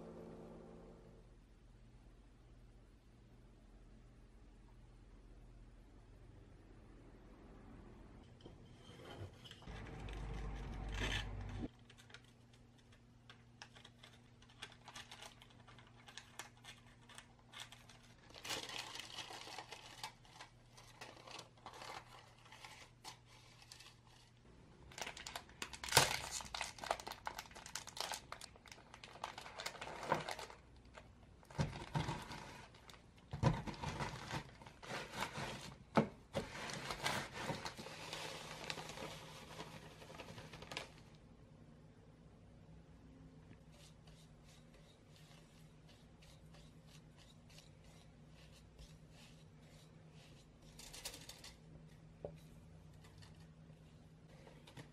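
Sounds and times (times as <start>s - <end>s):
plastic packaging crinkling: 13.6s - 35.8s, 36.4s - 41.1s.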